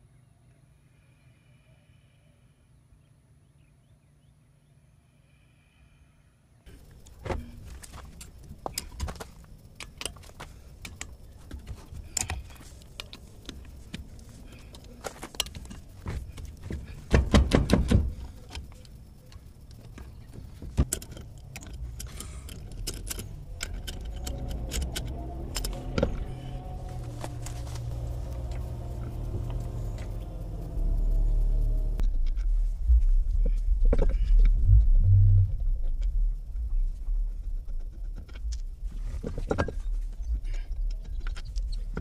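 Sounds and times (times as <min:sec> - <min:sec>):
low background hum: 0:00.0 - 0:42.0
wrench clinking on wheel bolts: 0:14.7 - 0:27.8.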